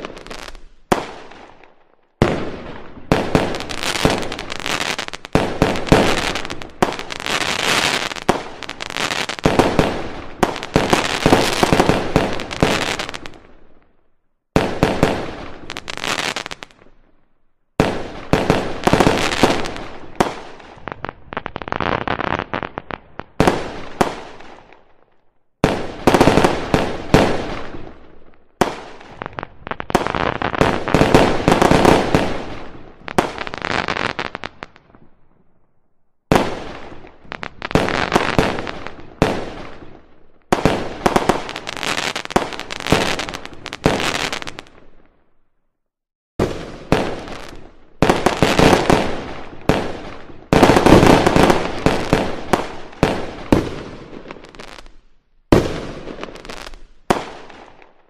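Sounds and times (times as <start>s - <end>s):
fireworks bangs and crackling: 0.0s - 17.2s, 17.8s - 35.6s, 36.2s - 45.3s, 46.4s - 58.0s.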